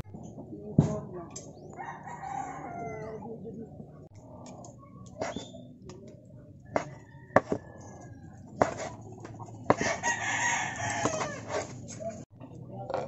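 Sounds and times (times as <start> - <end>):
rooster crowing: 1.8 - 3.2, 6.7 - 8.4, 9.8 - 11.6
knife chopping on wooden board: 6.7 - 7.6, 8.6 - 10.0.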